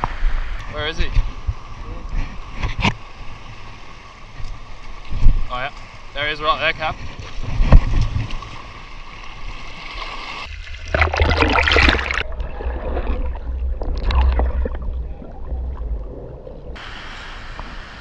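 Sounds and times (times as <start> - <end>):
seawater sloshing and splashing: 6.9 - 16.8
muffled underwater rumble and gurgle: 10.9 - 17.8.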